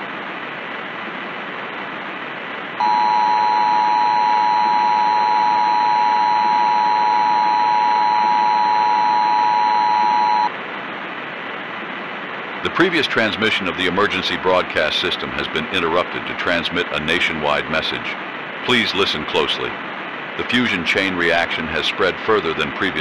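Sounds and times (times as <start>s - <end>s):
static hiss: 0.0s - 23.0s
two-tone attention signal: 2.8s - 10.5s.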